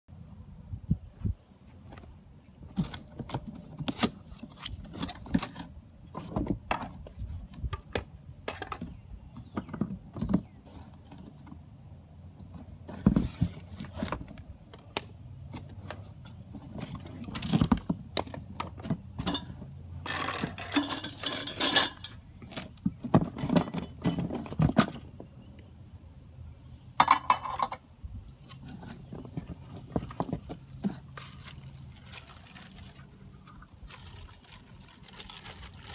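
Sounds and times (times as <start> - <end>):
cardboard rustling and scraping: 1.8 - 7.7, 12.4 - 14.5, 28.3 - 33.1
metal parts knocking on concrete: 27.0 - 27.8.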